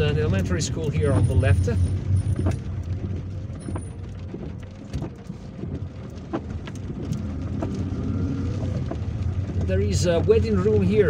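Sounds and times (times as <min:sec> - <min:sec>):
car rumbling on road: 0:00.0 - 0:11.0
raindrops ticking on car roof: 0:00.0 - 0:11.0.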